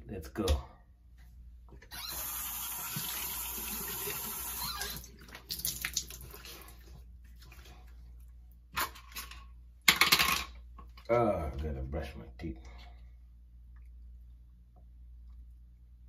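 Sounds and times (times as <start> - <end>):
water running from tap: 2.0 - 6.8.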